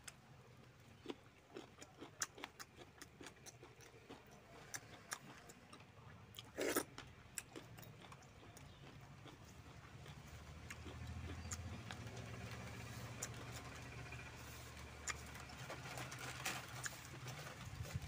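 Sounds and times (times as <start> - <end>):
mouth clicks and chewing: 0.0 - 18.0.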